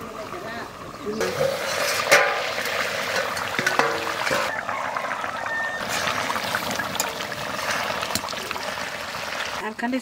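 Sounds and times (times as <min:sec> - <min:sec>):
spatula stirring in pan: 0:01.2 - 0:04.5
curry sizzling and spitting: 0:01.2 - 0:09.6
metal lid clinks: 0:03.1 - 0:04.5.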